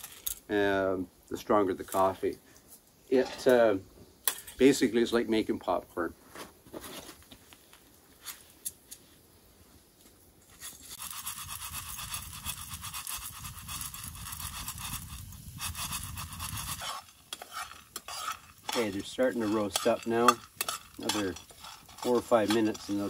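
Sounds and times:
coffee beans rattling in a tin pan: 0:10.6 - 0:23.0.

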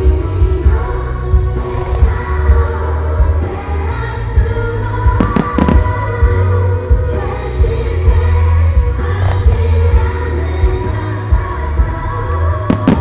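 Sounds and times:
song with singing over speakers: 0:00.0 - 0:13.0
firework bangs: 0:05.2 - 0:06.0, 0:12.7 - 0:13.0.

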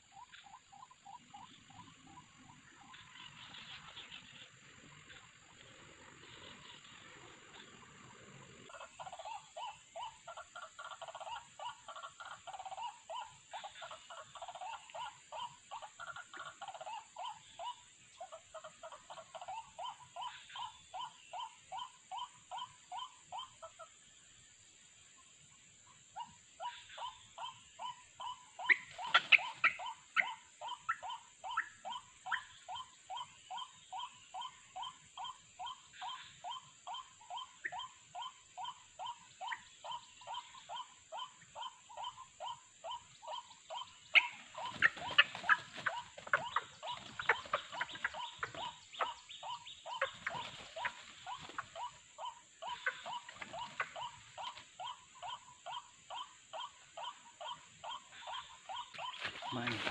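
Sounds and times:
harsh bird calling: 0:26.2 - 0:59.9.

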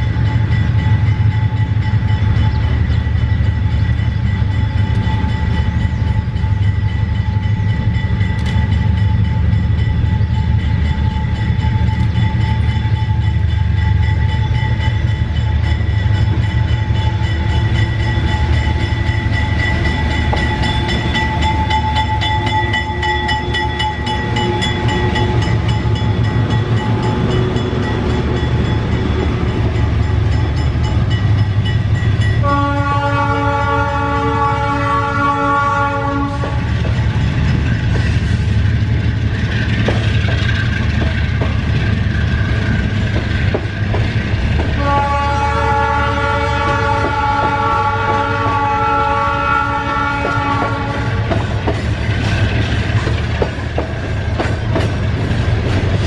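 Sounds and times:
locomotive engines rumbling: 0:00.0 - 0:56.0
train air horn: 0:32.4 - 0:36.7, 0:44.8 - 0:51.3.

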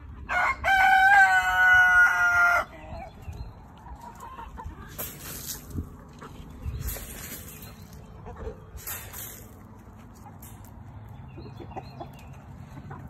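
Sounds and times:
rooster crowing: 0:00.3 - 0:02.7.

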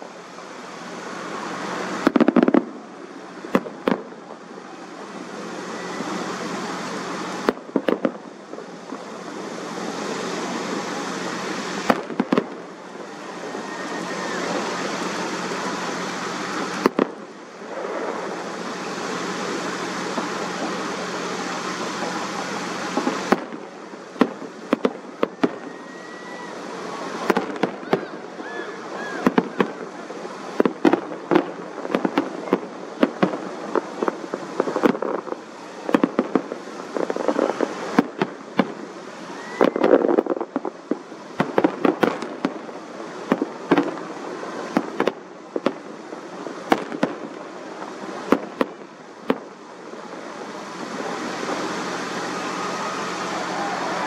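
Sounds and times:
fireworks bangs and crackles: 0:00.0 - 0:54.0
rumbling fireworks booms: 0:00.0 - 0:54.0.

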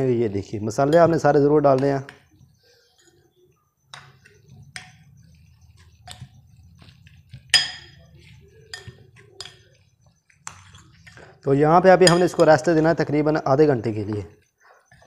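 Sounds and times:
spoon stirring thick paste: 0:00.0 - 0:15.0
spoon clinking glass bowl: 0:00.7 - 0:03.3, 0:03.9 - 0:13.0.

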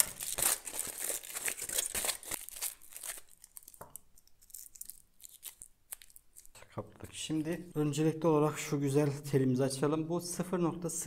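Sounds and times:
aluminium foil crinkling: 0:00.0 - 0:06.6.

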